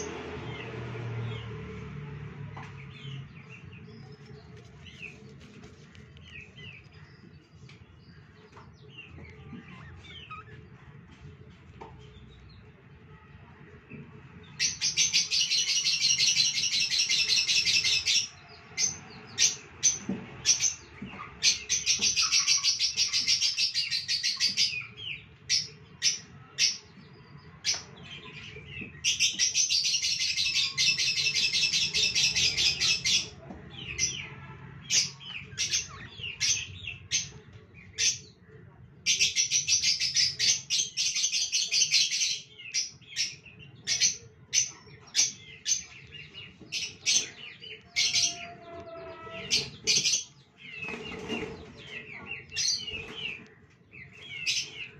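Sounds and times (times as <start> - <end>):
budgerigars chattering: 14.6 - 25.0.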